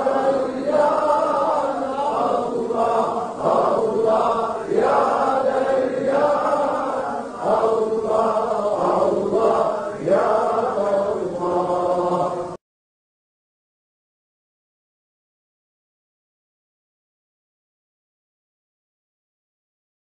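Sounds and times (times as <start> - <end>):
men chanting rhythmically: 0.0 - 12.6.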